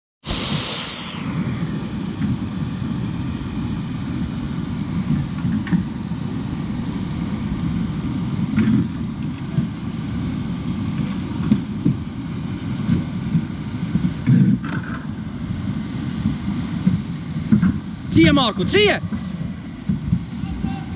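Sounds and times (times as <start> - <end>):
wind buffeting microphone: 0.3 - 20.9
river water rushing: 14.7 - 20.9.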